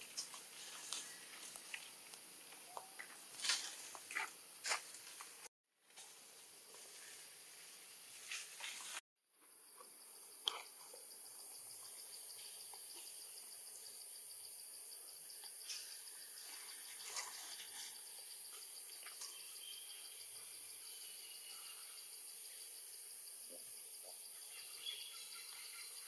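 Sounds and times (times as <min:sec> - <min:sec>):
insect chorus trilling: 0:09.6 - 0:26.0.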